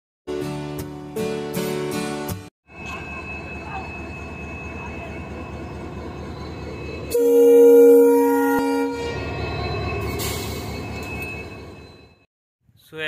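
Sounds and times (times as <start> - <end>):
diesel locomotive engine rumble: 2.7 - 12.2
loud train horn: 7.1 - 9.4.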